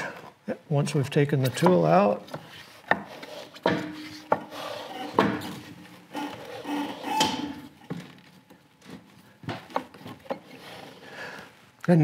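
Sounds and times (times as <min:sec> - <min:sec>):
rubber belt rubbing on pulleys: 0:02.4 - 0:08.3, 0:09.7 - 0:11.1.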